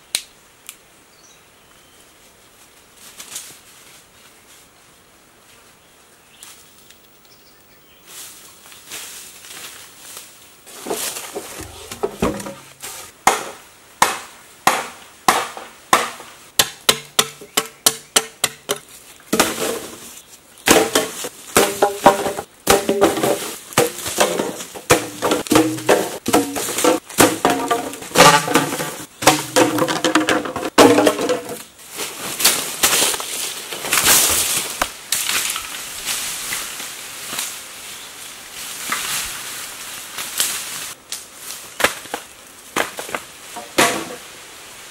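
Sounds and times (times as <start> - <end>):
rustling: 8.0 - 13.2
bamboo being chopped: 10.7 - 20.0, 20.6 - 31.7, 41.8 - 44.3.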